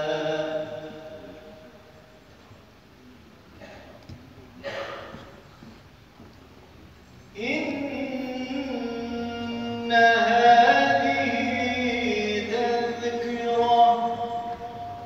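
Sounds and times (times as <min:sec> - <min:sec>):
man chanting a hymn: 0:00.0 - 0:01.9, 0:07.3 - 0:15.0.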